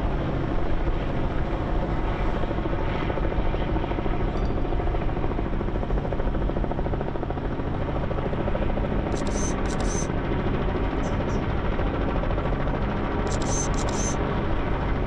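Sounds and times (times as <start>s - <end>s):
helicopter engine and rotor drone: 0.0s - 15.0s.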